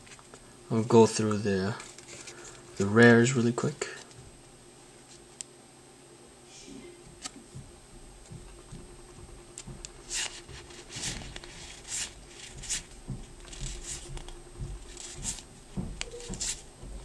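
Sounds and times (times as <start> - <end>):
cards sliding against cards: 10.0 - 12.9, 13.5 - 16.7.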